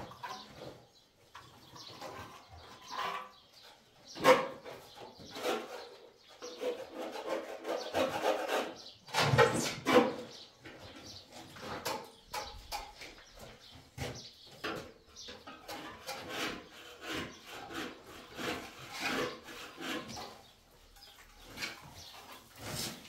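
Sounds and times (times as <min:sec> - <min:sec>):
trowels scraping wet plaster: 0:04.2 - 0:10.4, 0:15.6 - 0:23.0.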